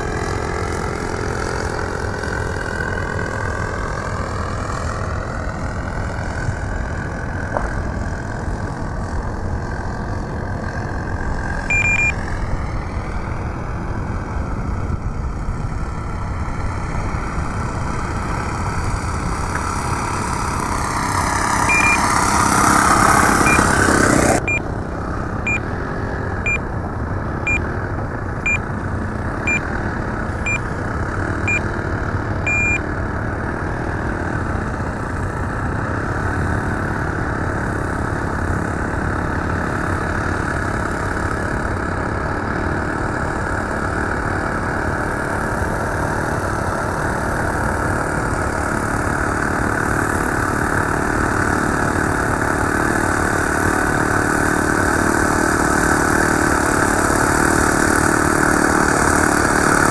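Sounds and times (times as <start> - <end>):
steady engine-like hum: 0.0 - 59.9
short high electronic beeps: 11.7 - 12.2, 21.6 - 22.1, 31.5 - 31.7, 32.5 - 32.8.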